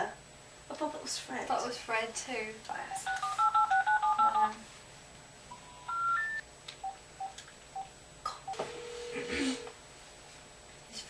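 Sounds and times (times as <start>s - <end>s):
telephone keypad tones: 3.0s - 4.5s, 5.5s - 7.9s
rising three-tone telephone signal: 3.1s - 4.4s, 5.5s - 6.4s, 8.5s - 9.7s.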